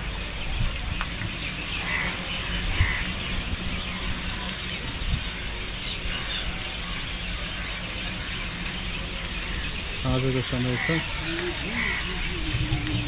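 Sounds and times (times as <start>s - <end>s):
wind on microphone: 0.0s - 6.7s, 11.0s - 13.0s.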